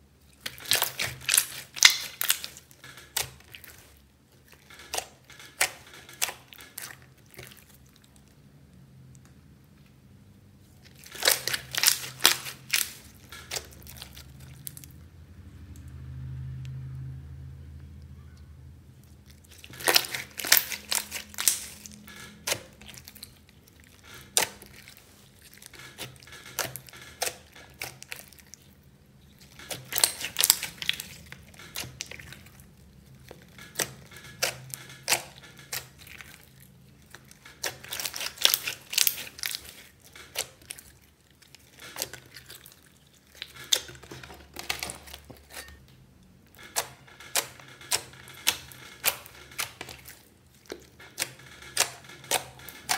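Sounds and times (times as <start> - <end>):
slime squished by hand: 0.2 - 8.4, 10.8 - 15.0, 19.0 - 45.7.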